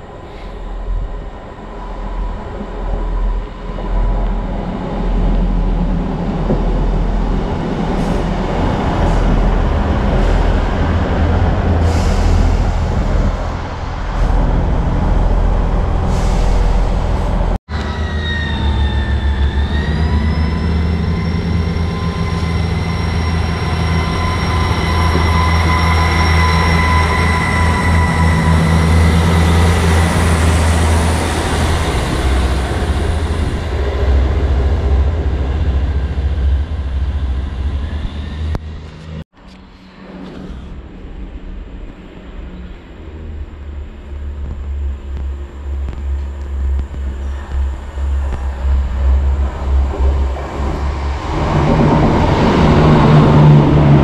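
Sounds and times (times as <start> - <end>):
train engine whine: 0.0 - 54.0
train rumbling past: 0.0 - 54.0.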